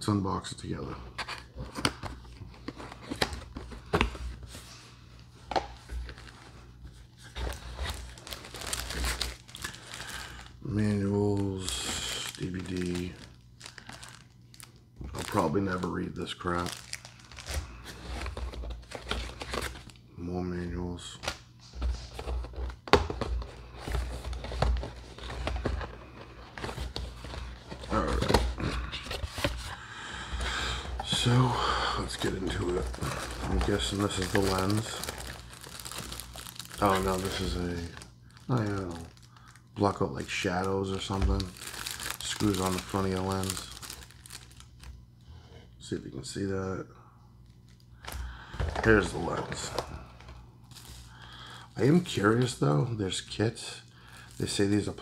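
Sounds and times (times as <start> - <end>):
packaging rustling: 1.1 - 4.7, 5.4 - 20.0, 21.2 - 45.0, 47.4 - 52.8, 54.0 - 55.0.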